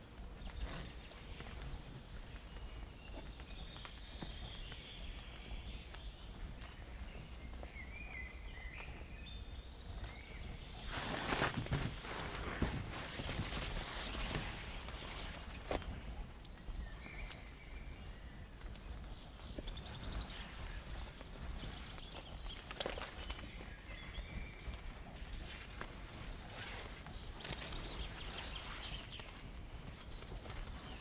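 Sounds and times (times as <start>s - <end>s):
footsteps on wet forest path: 0.3s - 31.0s
rustling crunching steps: 9.9s - 16.4s, 19.5s - 31.0s.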